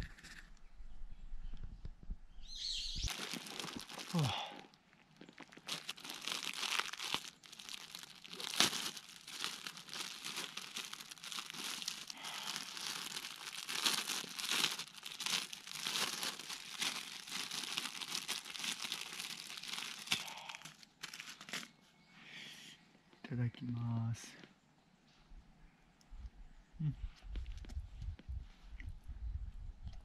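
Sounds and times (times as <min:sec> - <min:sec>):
plastic packaging crinkling: 0:03.1 - 0:21.7.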